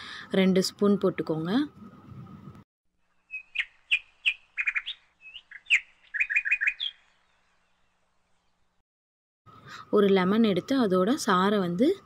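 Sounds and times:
small bird chirping: 0:03.1 - 0:08.8.

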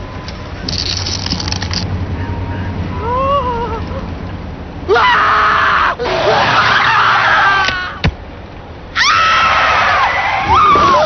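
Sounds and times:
loud screaming: 0:04.9 - 0:08.0, 0:08.9 - 0:11.0.

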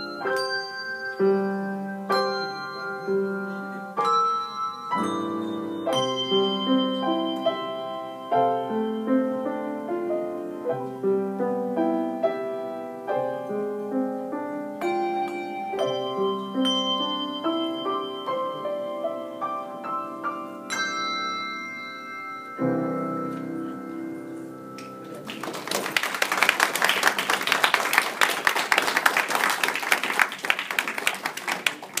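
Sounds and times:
brass handbells ringing a tune: 0:00.0 - 0:09.5, 0:14.8 - 0:25.1
audience applauding: 0:25.0 - 0:32.0.

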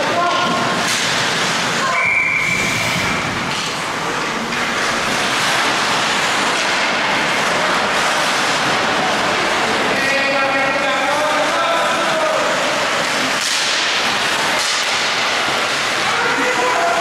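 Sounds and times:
skates scraping on ice: 0:02.5 - 0:09.8, 0:10.8 - 0:17.0.

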